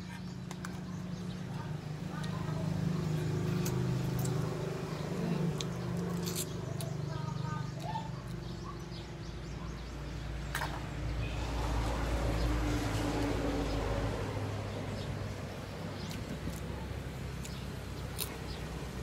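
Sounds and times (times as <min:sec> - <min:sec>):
chewing: 0:02.2 - 0:08.8, 0:16.0 - 0:18.7.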